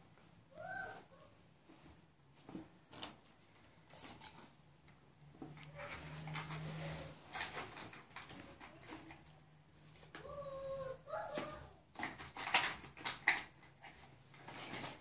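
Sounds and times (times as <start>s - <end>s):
plastic rubbing and rustling: 5.4s - 10.3s, 11.1s - 15.0s.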